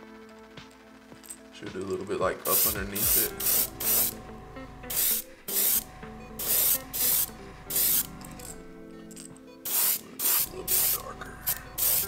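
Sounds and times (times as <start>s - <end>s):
airbrush spraying hisses: 2.5s - 4.2s, 4.9s - 8.1s, 9.6s - 12.0s.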